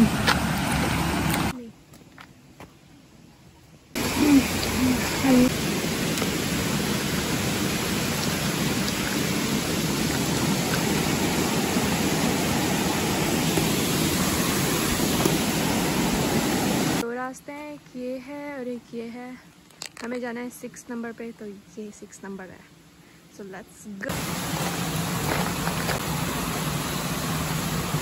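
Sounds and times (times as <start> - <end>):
steady rushing noise: 4.0 - 17.0.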